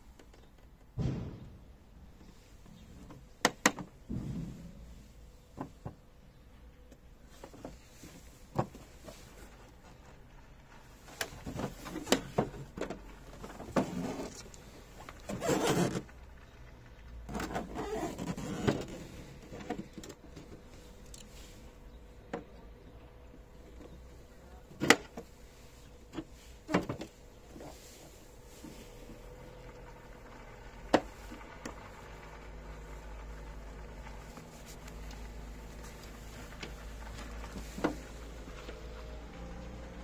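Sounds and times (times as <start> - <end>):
scuffing and handling noise: 23.4 - 30.1, 33.0 - 39.2.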